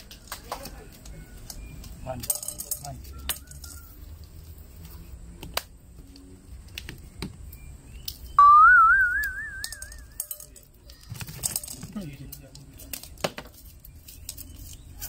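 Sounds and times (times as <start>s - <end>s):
warbling whistle: 8.4s - 10.2s.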